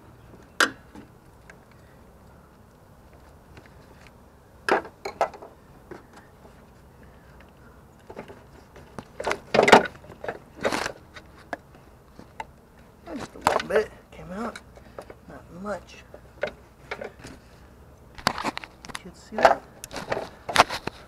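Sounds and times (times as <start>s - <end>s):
hands handling rubber hose: 7.4s - 13.8s, 16.1s - 21.0s.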